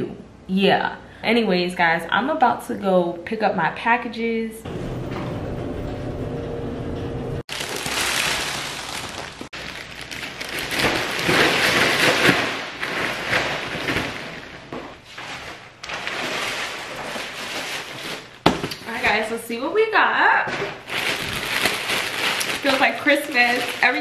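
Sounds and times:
plastic bag rustling: 7.5 - 19.7, 20.3 - 24.0.

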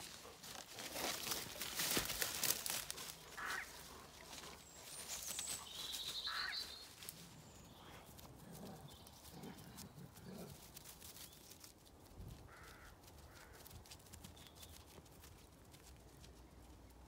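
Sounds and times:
harsh animal calls: 3.4 - 3.9.

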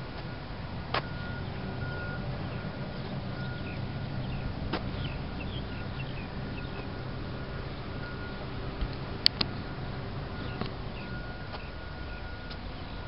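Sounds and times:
low rumble: 0.0 - 13.0
faint high bird chirps: 1.1 - 8.4, 10.4 - 13.0.

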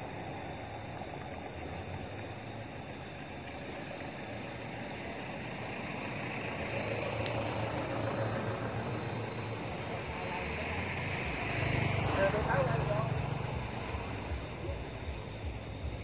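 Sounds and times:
vehicle engine running: 3.7 - 16.0.

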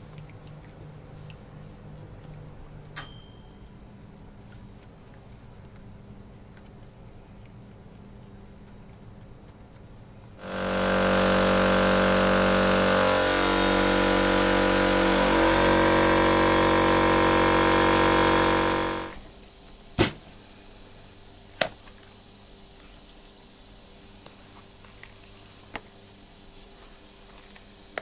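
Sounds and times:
motor-driven machine running: 10.4 - 19.2.

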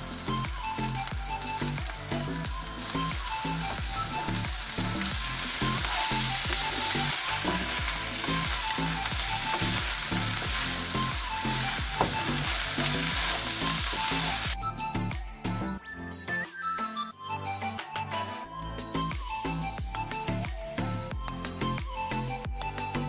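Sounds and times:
food sizzling in a pan: 0.0 - 14.6
background music: 0.0 - 23.0.

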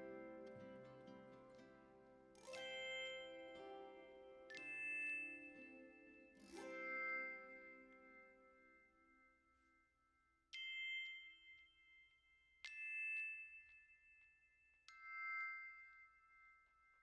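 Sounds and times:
bell-like struck notes: 0.0 - 9.9.

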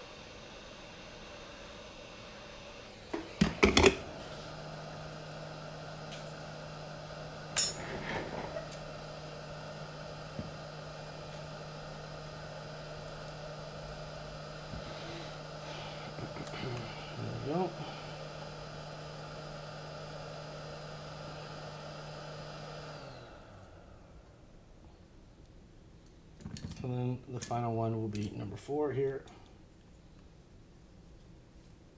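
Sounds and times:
steady low hum: 3.9 - 20.7.

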